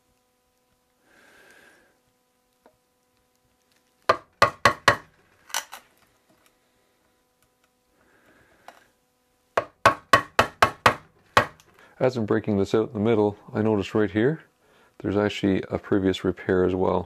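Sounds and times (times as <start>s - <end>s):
chisel knocking into wood: 4.1s - 5.1s, 9.6s - 11.6s.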